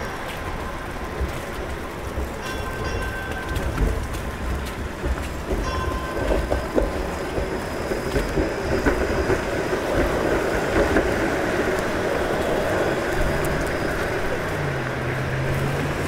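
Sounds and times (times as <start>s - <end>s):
streetcar rumbling on rails: 0.0s - 16.0s
wind buffeting microphone: 0.0s - 16.0s.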